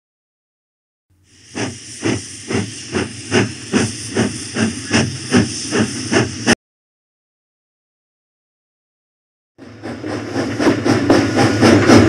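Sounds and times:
steam hissing: 1.2s - 6.6s, 9.6s - 12.0s
steam locomotive chuffing: 1.2s - 6.6s, 9.6s - 12.0s.

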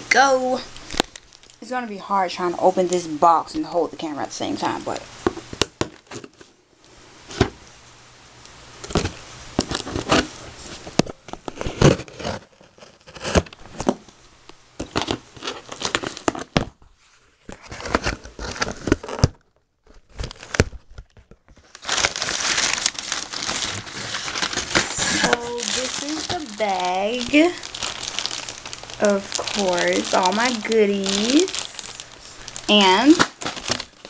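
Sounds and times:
plastic wrapping rustling: 0.2s - 2.1s, 4.4s - 6.6s, 8.8s - 34.0s
cardboard box being opened: 8.9s - 14.0s, 17.5s - 19.4s, 20.0s - 32.6s.

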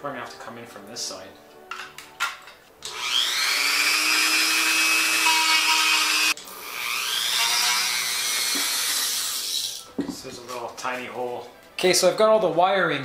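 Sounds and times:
rotary tool grinding: 2.8s - 9.8s.

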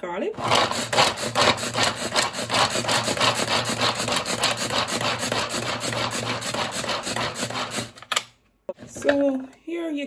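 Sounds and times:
pull-cord food chopper whirring: 0.4s - 8.0s.

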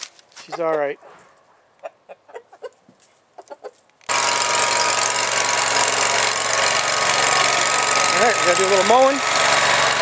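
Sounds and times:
faint chicken clucks: 0.4s - 3.8s
riding lawn mower engine running: 4.1s - 10.0s.

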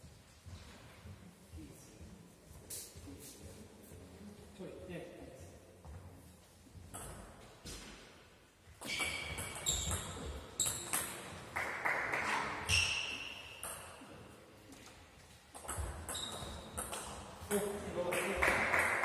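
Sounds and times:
table tennis ball hits: 8.8s - 14.0s.

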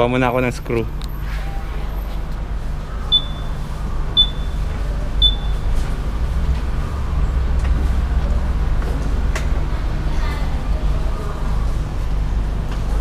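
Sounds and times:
high-pitched electronic beeps: 3.1s - 3.6s, 4.2s - 4.6s, 5.2s - 5.7s.

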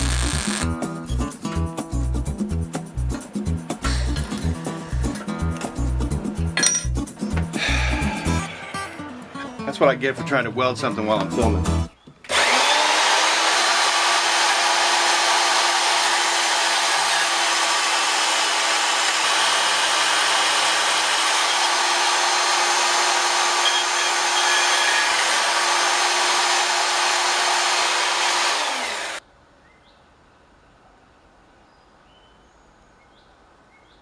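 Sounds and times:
band saw blade cutting steel: 0.0s - 0.7s, 12.3s - 29.2s
motor humming: 0.0s - 0.7s, 12.3s - 29.2s
motor winding down: 0.0s - 0.7s, 12.3s - 29.2s.

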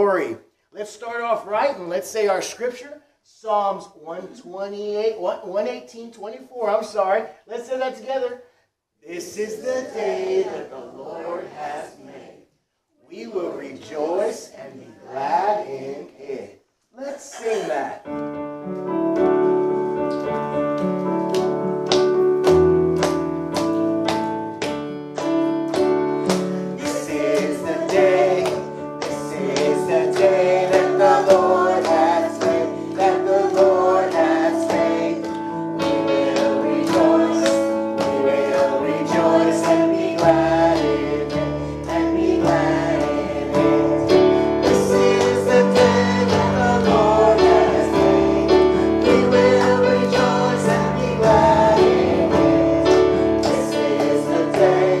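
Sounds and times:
person singing gospel song: 9.1s - 12.4s, 25.8s - 55.0s
instrumental backing with beat: 18.1s - 55.0s.

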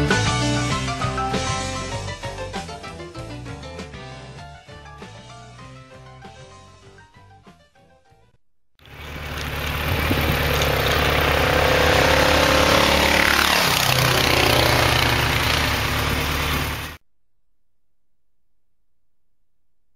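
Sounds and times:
motorcycle engine running: 8.8s - 17.0s.

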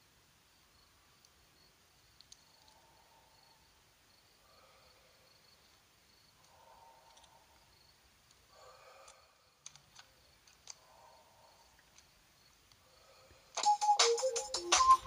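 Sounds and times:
faint sharp clicks: 2.2s - 2.8s, 6.4s - 8.4s, 11.7s - 12.8s.

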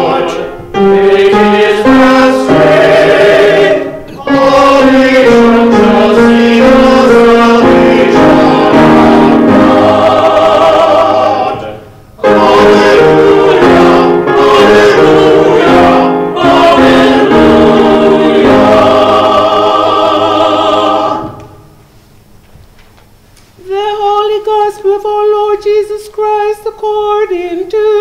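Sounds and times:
choir singing a hymn: 0.0s - 21.8s.

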